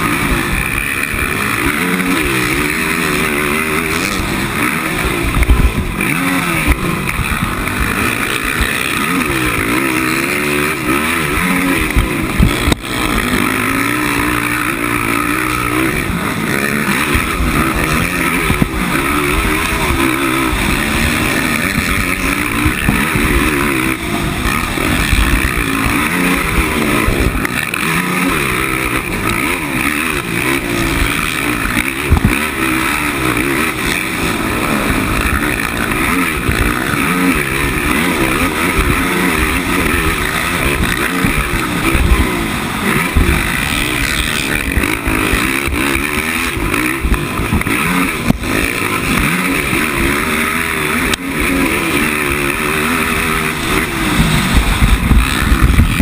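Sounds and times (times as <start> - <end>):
quad engine revving: 0.0 - 56.0
wind noise: 30.6 - 32.6, 53.6 - 56.0.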